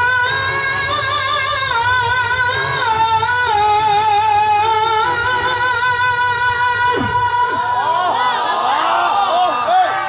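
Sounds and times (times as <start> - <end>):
man chanting into a microphone: 0.0 - 7.8.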